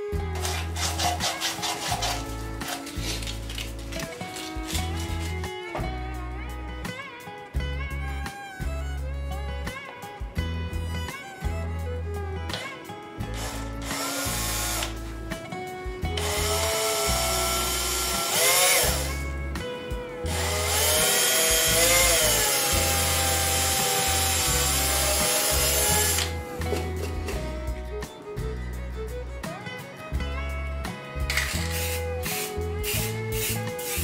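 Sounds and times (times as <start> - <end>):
cordless drill boring into wood: 13.4 - 15.0, 16.2 - 19.2, 20.3 - 26.4.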